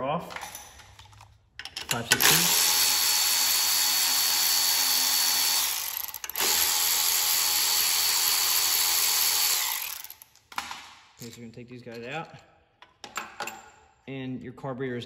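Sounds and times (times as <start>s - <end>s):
power drill whirring: 2.2s - 10.3s.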